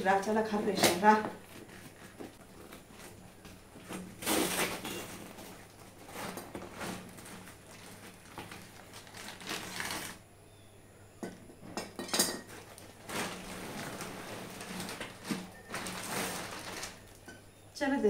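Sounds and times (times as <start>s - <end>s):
cardboard rustling and scraping: 0.8s - 10.2s, 12.5s - 17.1s.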